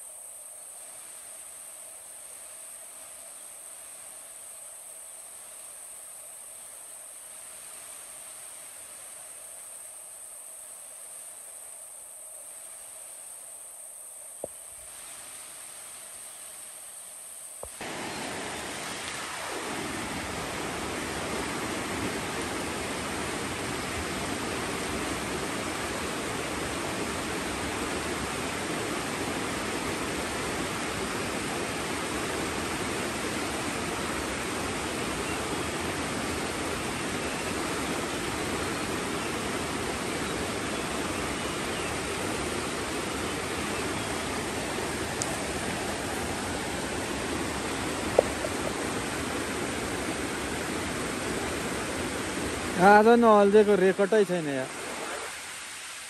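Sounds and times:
river rushing over rocks: 0:17.6 - 0:56.0.

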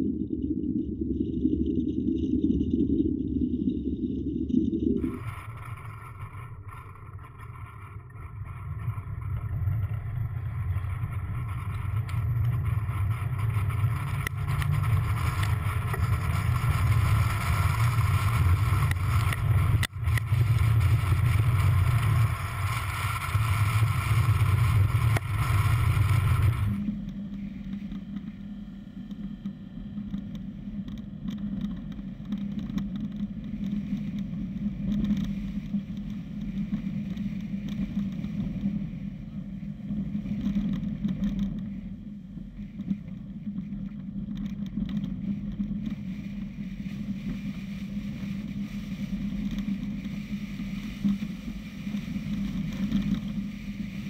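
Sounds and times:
car engine and road noise: 0:07.6 - 0:30.0.

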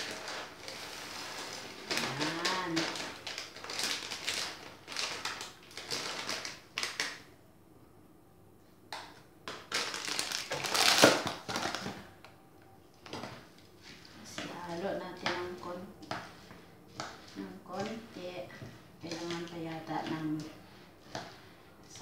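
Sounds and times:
mixing in a bowl: 0:00.0 - 0:06.4, 0:12.9 - 0:22.0.

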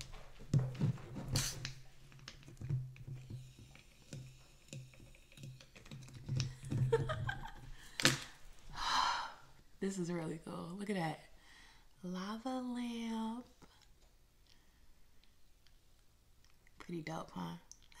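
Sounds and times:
tablets fizzing: 0:01.2 - 0:08.4
small clicks and taps on glass bottle: 0:01.6 - 0:07.2.

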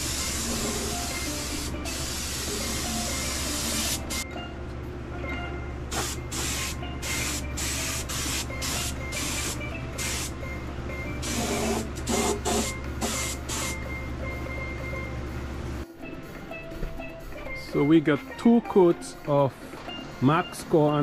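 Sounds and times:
spray gun hissing: 0:00.0 - 0:04.2, 0:05.9 - 0:10.4, 0:11.2 - 0:13.8.

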